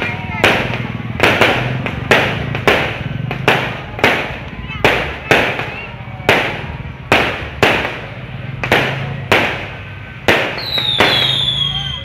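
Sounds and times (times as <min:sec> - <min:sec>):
fireworks bangs: 0:00.0 - 0:12.0
falling firework whistle: 0:10.6 - 0:12.0.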